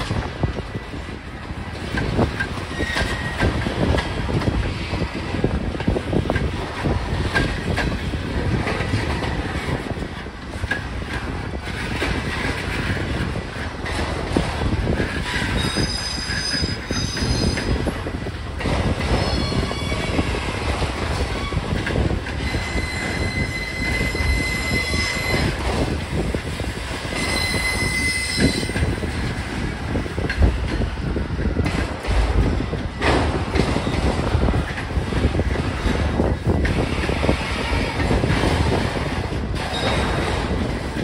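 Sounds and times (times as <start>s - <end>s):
train wheels rumbling on rail: 0.0s - 41.0s
wheel squeals: 2.6s - 3.6s, 15.2s - 17.9s, 19.0s - 20.5s, 21.1s - 25.9s, 27.0s - 29.0s.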